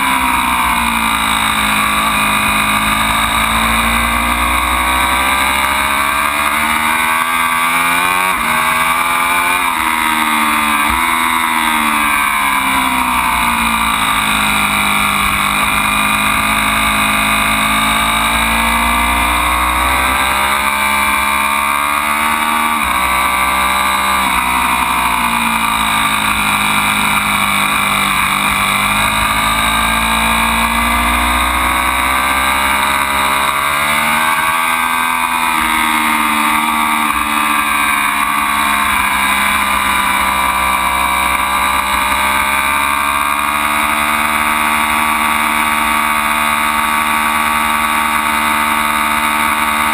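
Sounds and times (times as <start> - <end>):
motorcycle engine revving: 0.0 - 49.9.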